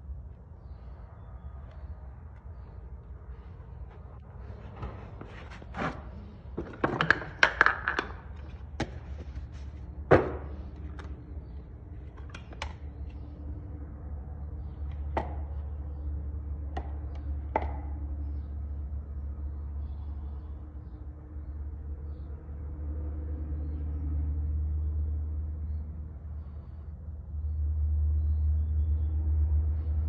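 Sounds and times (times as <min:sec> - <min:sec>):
steady low hum: 0:00.0 - 0:30.0
knocks and taps: 0:06.6 - 0:09.4, 0:16.7 - 0:18.0.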